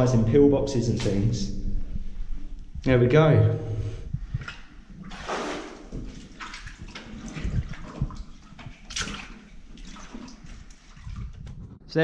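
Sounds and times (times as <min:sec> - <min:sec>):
boots wading through shallow water: 0:05.0 - 0:11.4.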